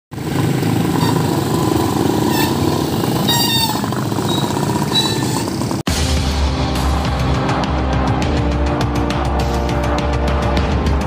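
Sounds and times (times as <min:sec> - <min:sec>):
motorcycle engines running: 0:00.1 - 0:05.9.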